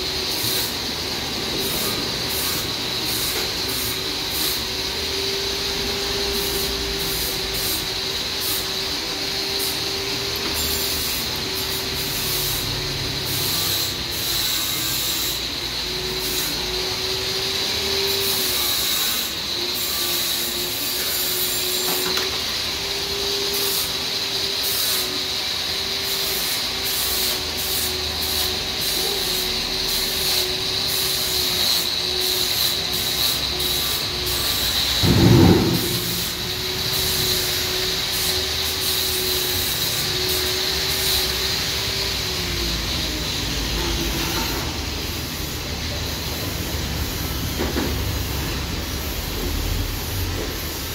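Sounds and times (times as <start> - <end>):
machine hum with high whine: 33.0 - 41.3
thump: 35.0 - 37.6.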